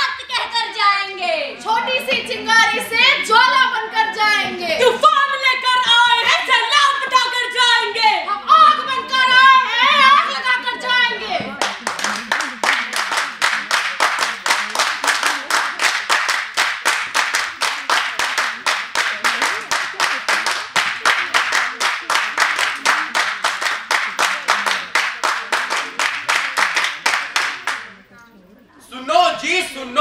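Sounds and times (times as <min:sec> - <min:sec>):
group clapping in unison: 0:11.6 - 0:28.0.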